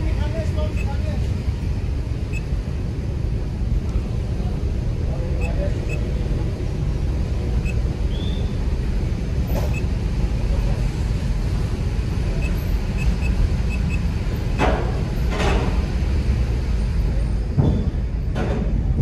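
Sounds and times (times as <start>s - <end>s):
low rumble of engines: 0.0s - 19.0s.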